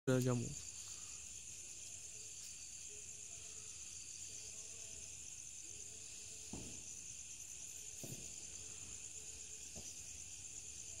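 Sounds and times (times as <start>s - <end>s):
night insects chirring: 0.1s - 11.0s
soft knock: 6.5s - 6.9s, 8.0s - 8.4s.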